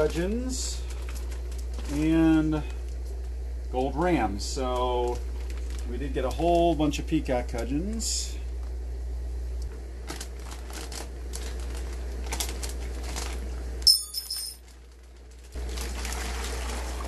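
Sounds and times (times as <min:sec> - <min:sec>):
plastic bag crinkling: 0:00.8 - 0:02.2, 0:05.3 - 0:05.9, 0:10.0 - 0:13.5
low hum: 0:12.7 - 0:14.6
sharp clink: 0:13.9 - 0:14.6.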